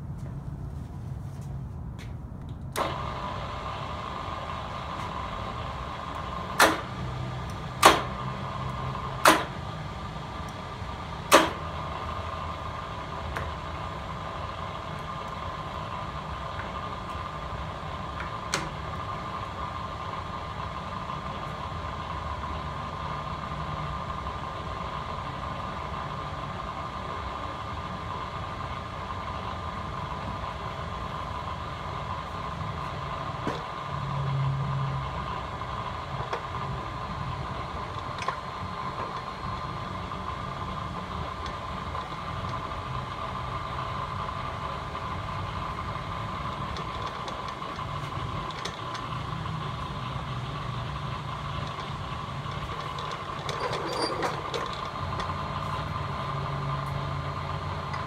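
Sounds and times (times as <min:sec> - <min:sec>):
drill press motor humming and whining: 0:02.8 - 0:58.0
sharp metal clunks: 0:06.6 - 0:07.0, 0:07.8 - 0:08.2, 0:09.2 - 0:09.6, 0:11.3 - 0:11.7.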